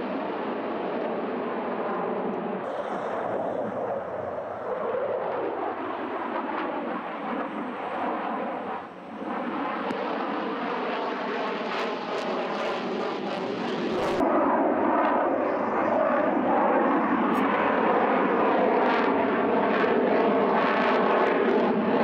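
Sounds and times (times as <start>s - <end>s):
fighter jet noise: 2.3s - 17.6s.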